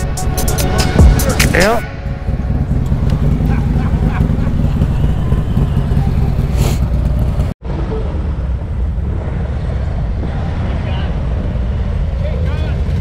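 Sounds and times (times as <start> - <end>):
motorcycles rolling past: 0.2 - 13.0
motorcycle engine idling: 0.3 - 7.6.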